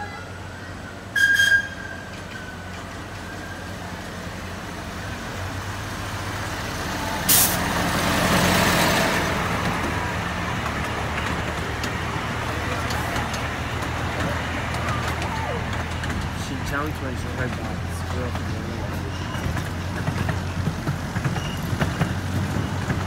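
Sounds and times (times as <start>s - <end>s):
locomotive hissing: 0.0s - 23.0s
locomotive passing: 0.0s - 23.0s
miniature train running: 7.9s - 23.0s.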